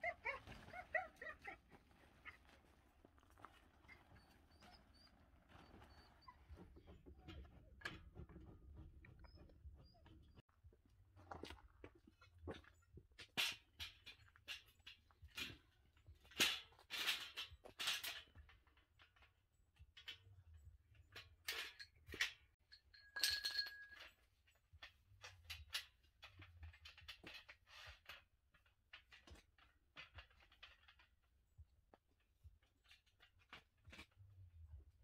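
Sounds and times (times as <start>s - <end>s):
metal table clinking and rattling: 21.4s - 24.4s.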